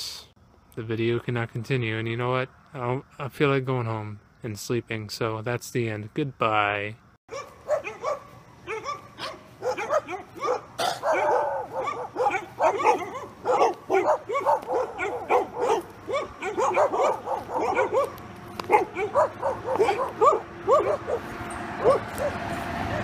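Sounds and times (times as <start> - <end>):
dog yapping: 7.3 - 22.4.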